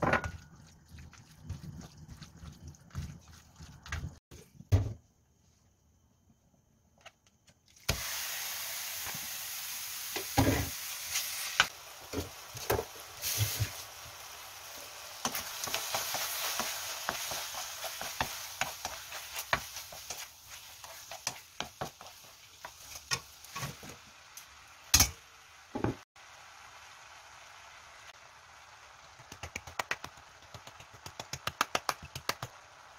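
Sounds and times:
chicken sizzling in frying pan: 7.9s - 32.9s.

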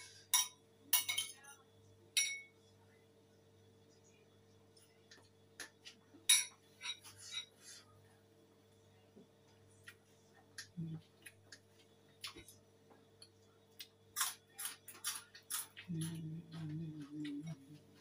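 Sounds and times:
person humming: 10.7s - 11.1s, 15.8s - 18.0s.

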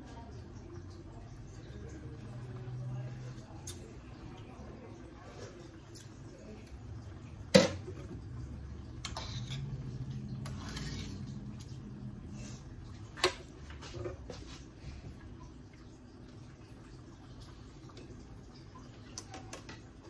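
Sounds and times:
metal spoon stirring soup: 0.0s - 14.6s.

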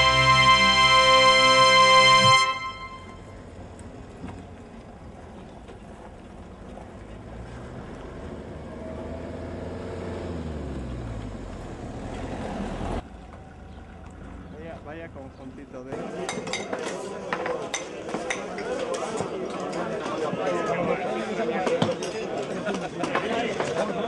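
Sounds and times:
vehicles driving past: 2.8s - 16.3s.

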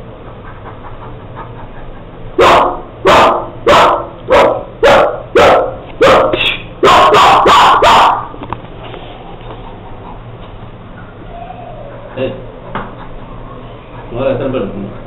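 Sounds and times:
loud dog barking: 2.4s - 8.4s.

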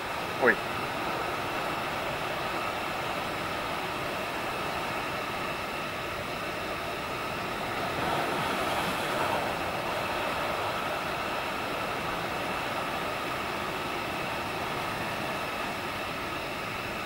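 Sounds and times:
sea waves breaking on rocks: 7.6s - 15.4s.

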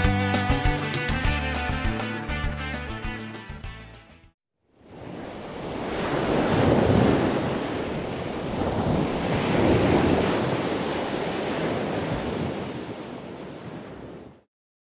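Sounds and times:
ocean surf breaking: 4.8s - 14.5s.

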